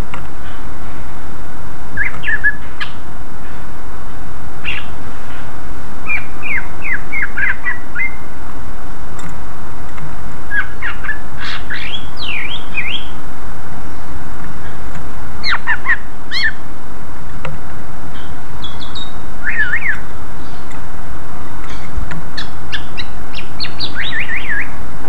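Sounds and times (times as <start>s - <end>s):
steady hiss: 0.0s - 25.0s
bird singing whistled notes: 2.0s - 3.0s, 4.6s - 5.0s, 6.0s - 8.2s, 10.5s - 13.2s, 15.4s - 16.6s, 18.1s - 20.1s, 21.7s - 24.8s.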